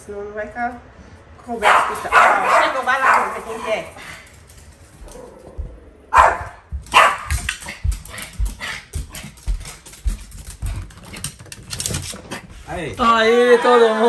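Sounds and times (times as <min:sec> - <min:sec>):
dog barking: 0:01.6 - 0:03.9, 0:05.1 - 0:07.4.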